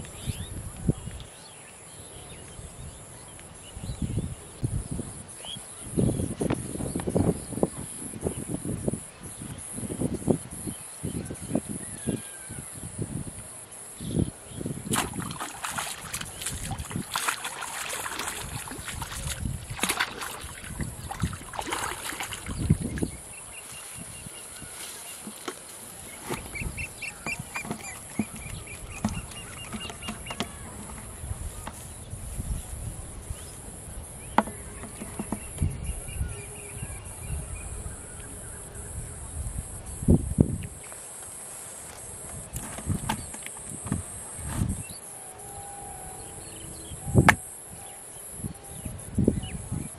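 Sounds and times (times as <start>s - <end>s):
insects buzzing: 4.6s - 49.9s
fish splashing in water: 14.8s - 31.1s.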